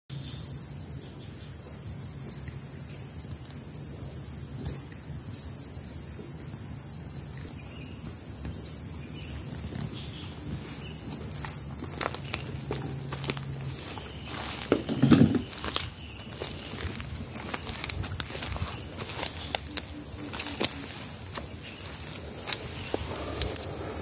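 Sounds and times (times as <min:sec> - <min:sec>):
insects buzzing: 0:00.1 - 0:24.0
insect trilling: 0:06.8 - 0:24.0
low steady rumble: 0:09.6 - 0:24.0.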